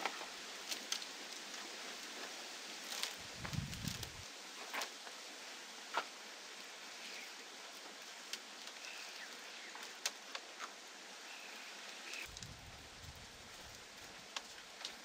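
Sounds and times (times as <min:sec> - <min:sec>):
bamboo strips clicking and tapping: 0:00.0 - 0:01.4, 0:09.7 - 0:10.8, 0:13.7 - 0:15.0
steady outdoor hiss: 0:00.0 - 0:15.0.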